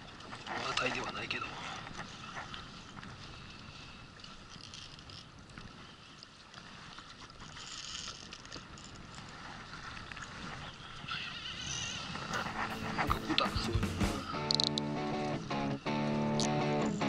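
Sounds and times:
water around a boat: 0.0 - 17.0
wind: 0.0 - 17.0
fishing reel drag clicking: 14.4 - 14.9.

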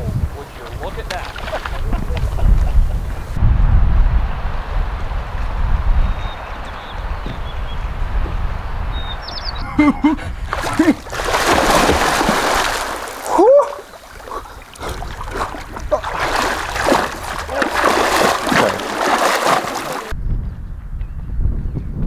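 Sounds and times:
wind rumbling on microphone: 0.0 - 22.0
person diving into water: 10.4 - 20.2
swimming strokes splashing: 10.4 - 20.2.

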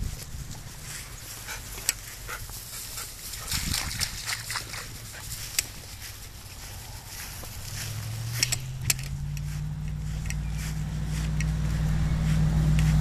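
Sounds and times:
low steady rumble: 4.8 - 13.0
sharp clicks: 8.3 - 10.6.

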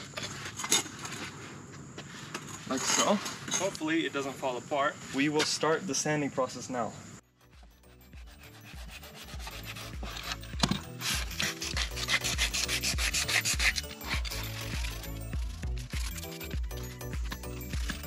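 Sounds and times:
sandpaper rasping on wood: 7.5 - 18.0.

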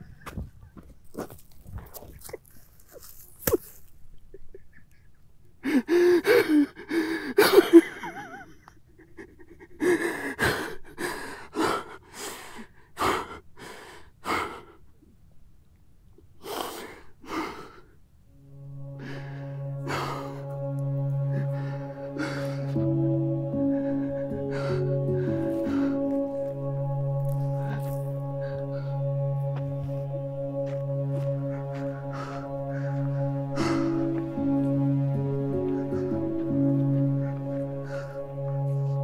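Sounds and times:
man sobbing: 4.3 - 12.2, 19.3 - 39.0
music with held notes: 18.3 - 39.0.

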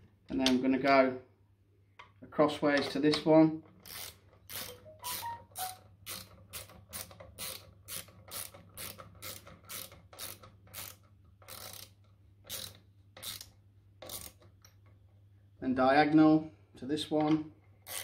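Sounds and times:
hand ratchet clicking: 3.8 - 14.8.

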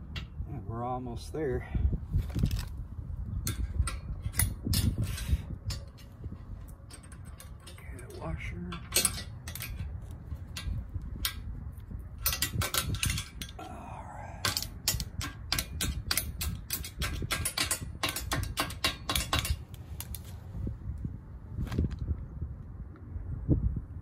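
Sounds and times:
low steady rumble: 0.0 - 24.0
metallic clicking and clinking: 3.4 - 11.4, 14.4 - 20.2.

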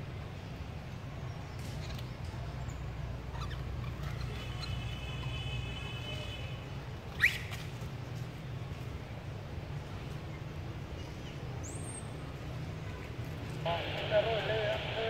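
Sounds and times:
macaque squeak: 3.3 - 4.9, 7.1 - 7.6
steady low rumble: 13.6 - 15.0.

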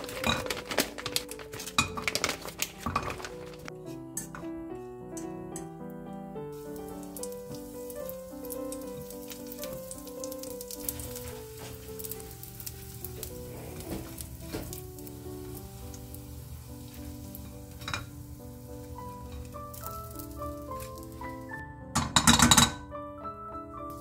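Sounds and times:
patties sizzling in oil: 0.0 - 3.7, 6.5 - 21.6
gentle background music: 0.0 - 24.0.

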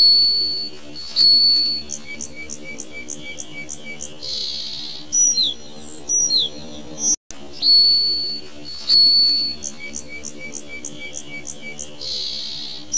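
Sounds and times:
high thin whistled notes: 0.0 - 4.6, 7.6 - 12.8
soft steady drone: 0.0 - 12.9.

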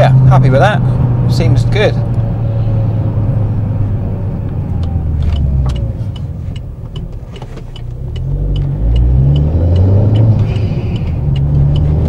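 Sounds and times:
car engine hum inside cabin: 0.0 - 12.0
turn indicator ticking: 4.4 - 12.0.

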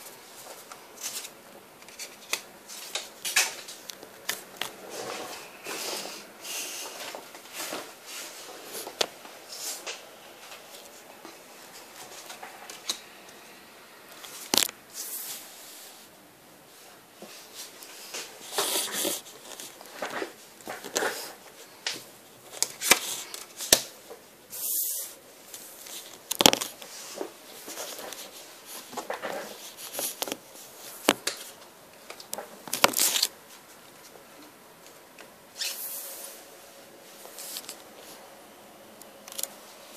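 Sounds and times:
rustling and scraping: 0.0 - 13.1, 16.7 - 34.3, 35.5 - 38.3.

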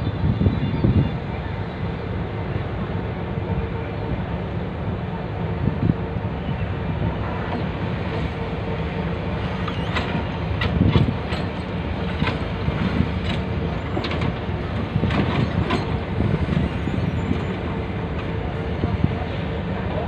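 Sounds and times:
diesel truck engines rumbling: 0.0 - 20.0.

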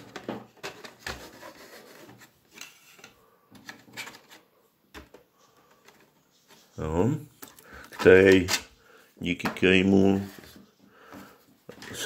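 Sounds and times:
plastic rubbing: 0.0 - 8.7.

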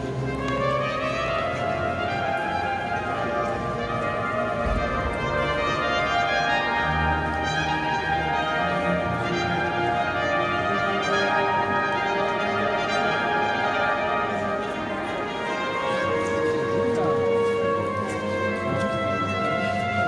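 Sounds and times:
brass ensemble playing slow chords: 0.0 - 20.0.

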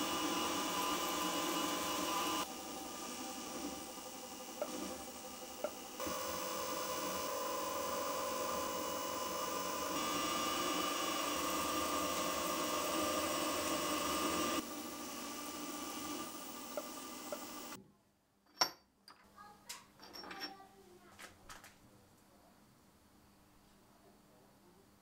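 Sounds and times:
drill cutting into metal: 0.0 - 17.8
milling machine spindle running: 0.0 - 17.8.

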